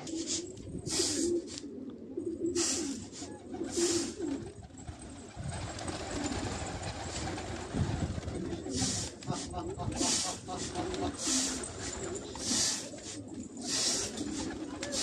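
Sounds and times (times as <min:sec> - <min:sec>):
pigeons cooing: 0:00.0 - 0:15.0
wings flapping: 0:03.2 - 0:15.0.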